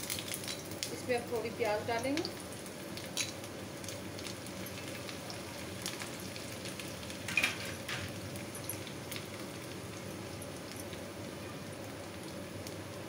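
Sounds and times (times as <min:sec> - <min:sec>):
onions sizzling in hot oil: 0:00.0 - 0:13.0.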